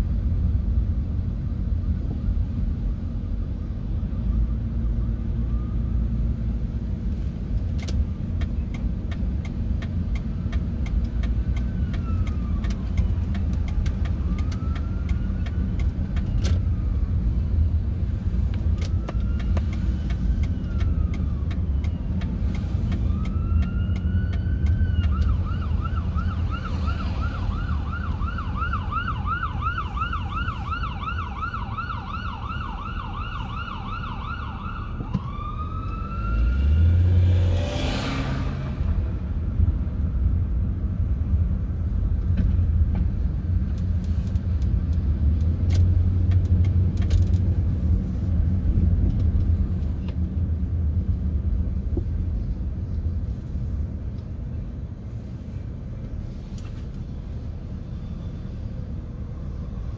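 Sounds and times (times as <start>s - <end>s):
car engine and road rumble: 0.0s - 59.9s
emergency vehicle siren: 1.6s - 6.7s, 10.0s - 39.3s.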